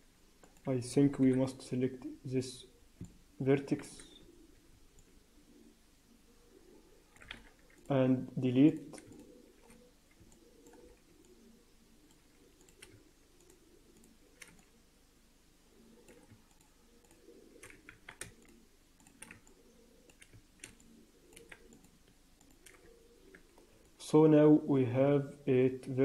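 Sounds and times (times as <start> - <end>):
computer mouse clicks: 7.1 - 8.0, 8.7 - 14.8, 16.0 - 24.0
keyboard clicks: 7.1 - 8.0, 8.7 - 11.4, 12.0 - 14.7, 16.0 - 24.0.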